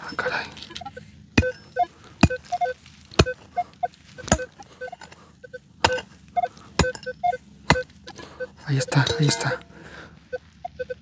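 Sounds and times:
digging tool striking ground: 0.0s - 5.2s, 5.8s - 8.2s, 8.9s - 9.7s
metal detector beeps: 0.0s - 9.7s, 10.3s - 11.0s.

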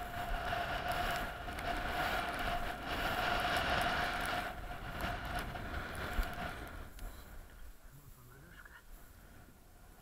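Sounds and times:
wind buffeting microphone: 0.0s - 10.0s
thin whistling tone: 7.0s - 7.4s.

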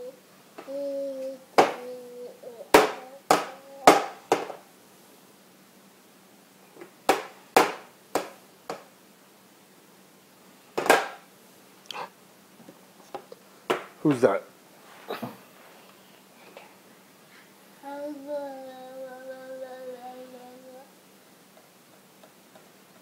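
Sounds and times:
plastic plate banging on tray: 7.1s - 8.8s, 10.8s - 11.2s.

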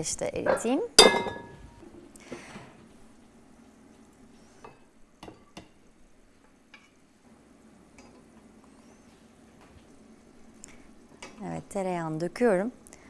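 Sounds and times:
metal lid clanging on wood: 0.5s - 1.7s
pot knocks: 0.5s - 1.7s.

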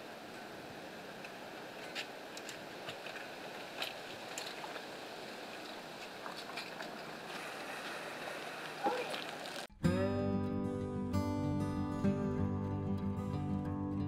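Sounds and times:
steady hiss: 0.0s - 9.7s.

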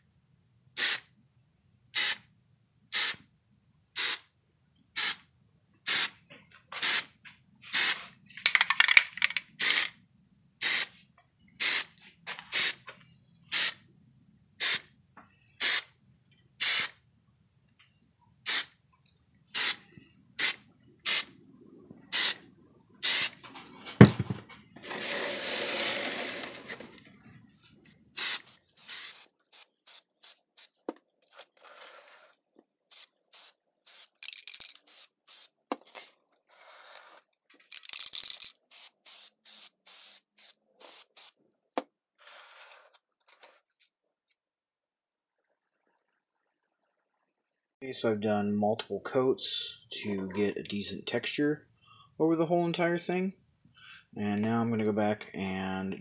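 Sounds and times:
aerosol can spraying: 0.8s - 1.1s, 4.0s - 4.2s, 7.7s - 8.7s, 9.6s - 9.9s, 13.5s - 13.8s, 14.6s - 14.8s, 15.6s - 15.9s, 16.6s - 17.0s, 18.5s - 18.7s, 19.6s - 19.8s, 22.1s - 22.4s, 23.0s - 23.4s, 27.8s - 41.4s, 42.2s - 43.6s.

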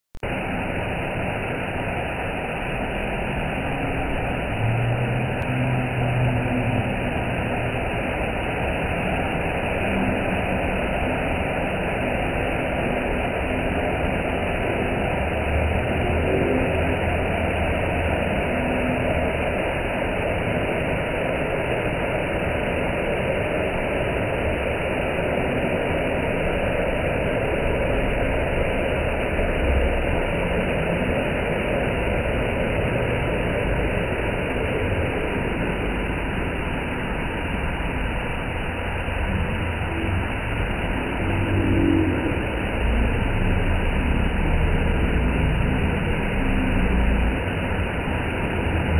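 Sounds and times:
waterfall pouring onto rocks: 0.3s - 48.9s.

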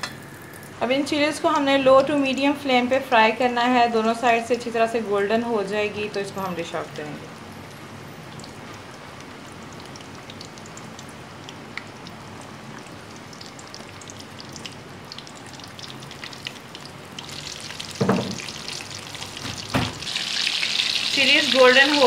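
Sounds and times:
chillies deep-frying in oil: 0.0s - 22.0s
knock: 18.0s - 18.4s, 19.4s - 20.0s.

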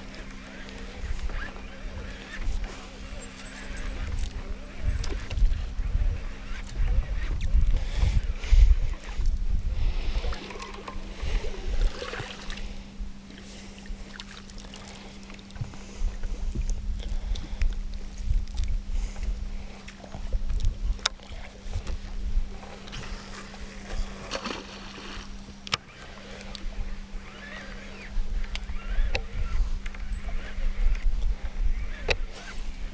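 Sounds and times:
steady low hum: 0.0s - 32.9s
water against hull: 0.0s - 32.9s
wind on microphone: 0.9s - 13.2s, 26.6s - 32.9s.

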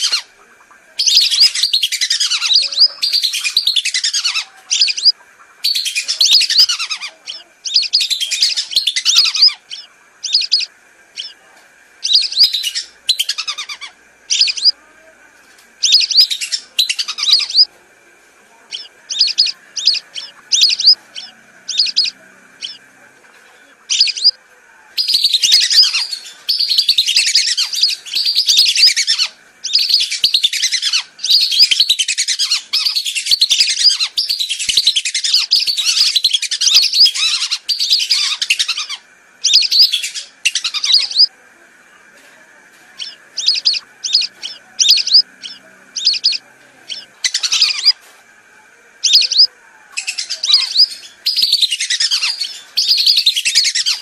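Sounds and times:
whistling duck calls: 1.0s - 11.4s, 43.0s - 48.0s, 49.0s - 49.5s.

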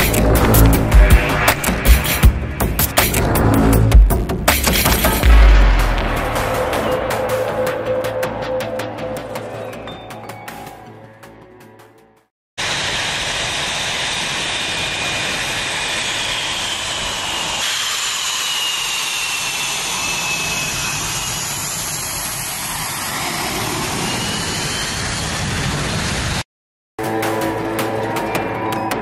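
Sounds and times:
fighter jet taxiing: 12.6s - 26.4s.

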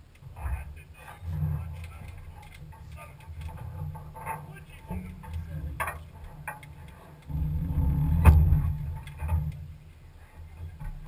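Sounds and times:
off-road vehicle engine rumble: 0.0s - 11.0s
rattling clicks from vehicle body: 8.2s - 9.7s.

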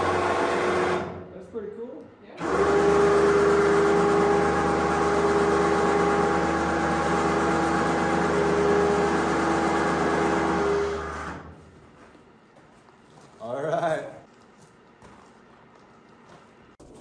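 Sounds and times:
electric winch motor whine: 0.0s - 1.3s, 2.4s - 11.6s.

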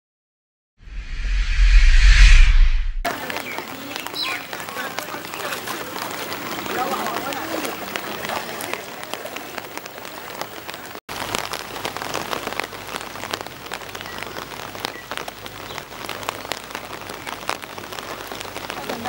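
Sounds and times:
rain pattering: 3.1s - 19.0s.

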